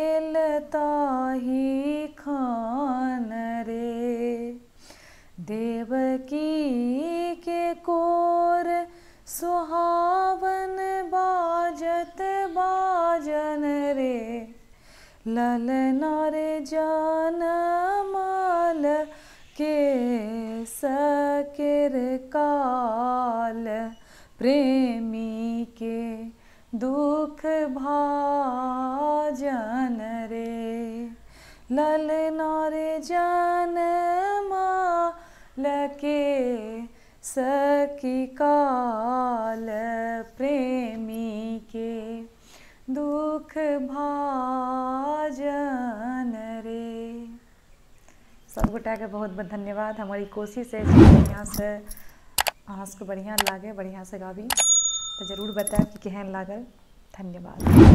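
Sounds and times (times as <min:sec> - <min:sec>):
woman singing unaccompanied: 0:00.0 - 0:04.8, 0:05.4 - 0:47.5, 0:48.5 - 0:50.8, 0:51.4 - 0:52.0, 0:55.2 - 0:57.6.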